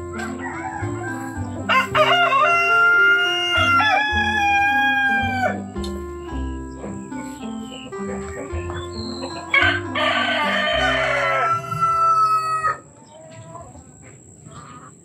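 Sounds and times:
rooster crowing: 0:00.0 - 0:05.7, 0:09.2 - 0:13.6
background music: 0:00.0 - 0:12.8.

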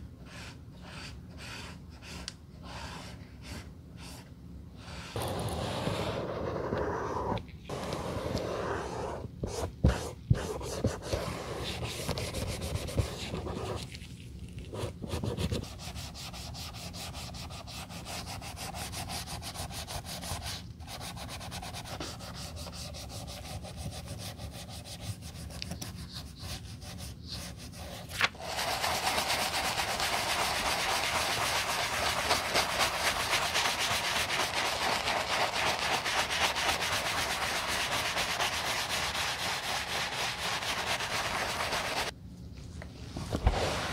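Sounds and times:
bristle brush scrubbing leather: 0:28.4 - 0:42.1
rubbing on leather sneaker: 0:28.5 - 0:42.1.

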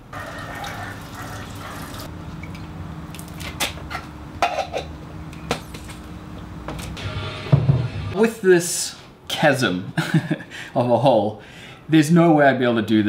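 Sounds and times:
water pouring into pipe: 0:00.0 - 0:02.1.

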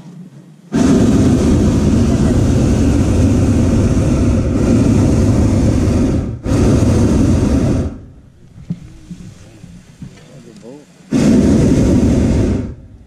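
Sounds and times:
propane burner firing: 0:00.7 - 0:13.0.

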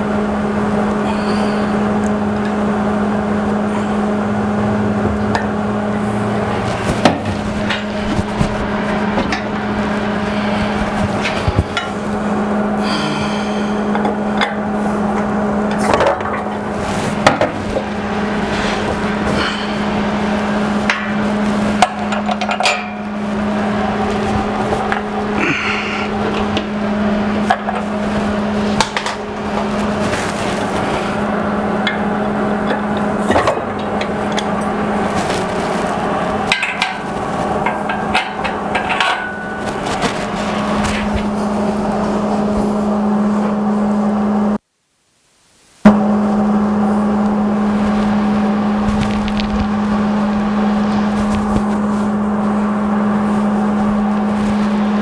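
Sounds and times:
steady low hum: 0:00.0 - 0:55.0
hand tools clanking on metal: 0:21.8 - 0:23.1, 0:36.5 - 0:40.2.

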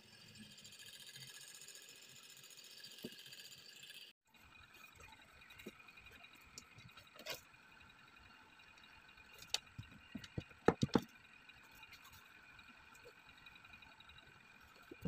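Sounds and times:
small knocks and taps: 0:09.5 - 0:11.1.

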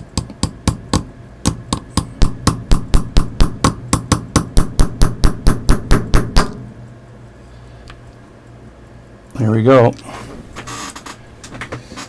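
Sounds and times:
hammer tapping on a punch: 0:00.0 - 0:06.6.

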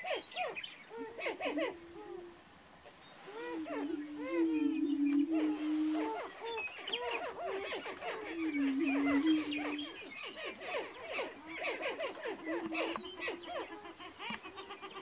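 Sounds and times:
prairie chickens whooping and cackling: 0:00.1 - 0:15.0
low steady hooting: 0:01.0 - 0:06.6, 0:07.4 - 0:13.8.

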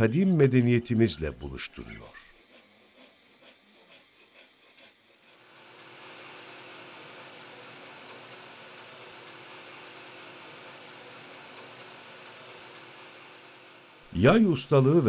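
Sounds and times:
band saw running: 0:05.2 - 0:15.0.

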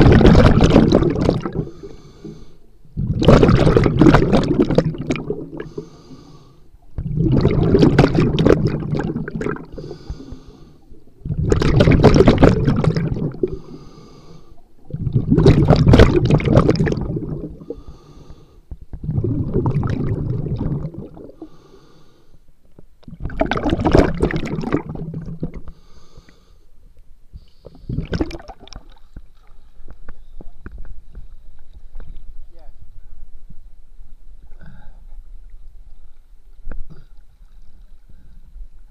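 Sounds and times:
bubbling exhalations underwater: 0:00.0 - 0:01.9, 0:02.9 - 0:05.9, 0:06.9 - 0:13.8, 0:14.8 - 0:17.9, 0:18.9 - 0:21.6, 0:23.1 - 0:25.8, 0:27.7 - 0:29.1
regulator hissing inhalation: 0:05.6 - 0:06.7, 0:13.4 - 0:14.6.

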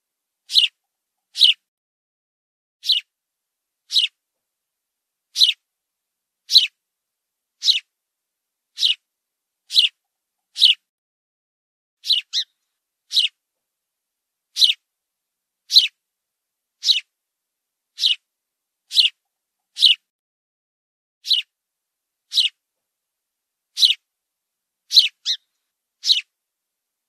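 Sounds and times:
sparrow chirping: 0:00.5 - 0:01.6, 0:02.8 - 0:03.1, 0:03.9 - 0:04.2, 0:05.3 - 0:05.6, 0:06.4 - 0:06.8, 0:07.6 - 0:07.9, 0:08.7 - 0:09.1, 0:09.7 - 0:10.8, 0:12.0 - 0:13.4, 0:14.5 - 0:14.8, 0:15.7 - 0:16.0, 0:16.8 - 0:17.1, 0:17.9 - 0:18.3, 0:18.9 - 0:20.1, 0:21.2 - 0:21.6, 0:22.3 - 0:22.6, 0:23.7 - 0:24.1, 0:24.9 - 0:26.3.

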